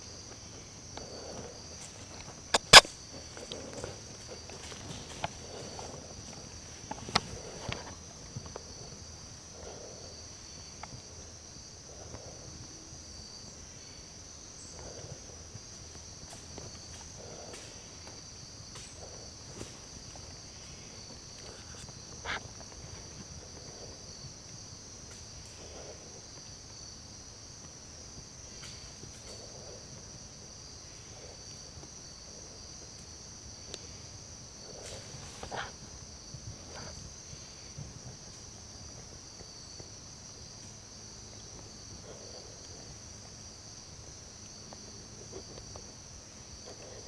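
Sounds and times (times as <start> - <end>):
insects chirping: 0.0 - 47.0
sharp click: 2.5 - 2.9.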